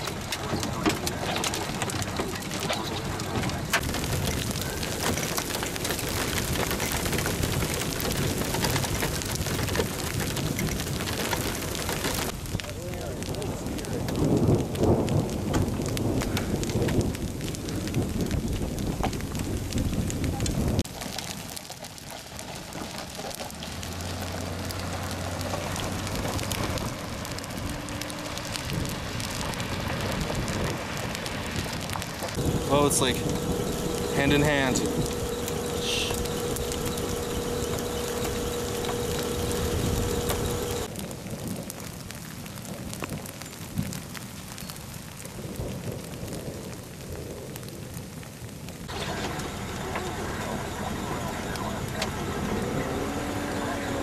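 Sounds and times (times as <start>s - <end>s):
hail ticking: 0.0s - 54.0s
heavy rain on hard surfaces: 0.0s - 54.0s
low steady hum: 32.4s - 40.9s.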